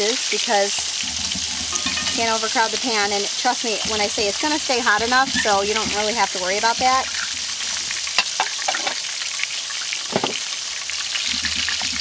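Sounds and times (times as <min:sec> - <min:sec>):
vegetable slices sizzling in oil: 0:00.0 - 0:12.0
utensil clicks and pan knock: 0:00.8 - 0:02.8, 0:08.1 - 0:09.0.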